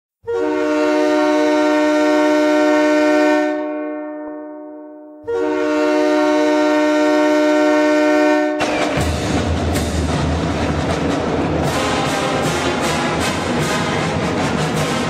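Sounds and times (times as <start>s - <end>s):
train horn blasts: 0.2s - 9.3s, 11.6s - 15.0s.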